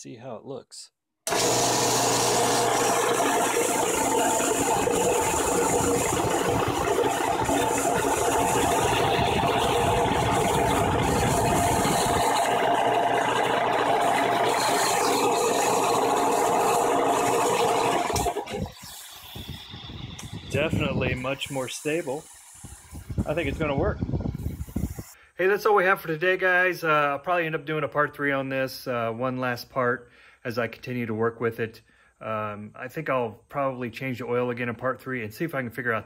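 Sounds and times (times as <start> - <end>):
air compressor running: 1.3 - 25.2.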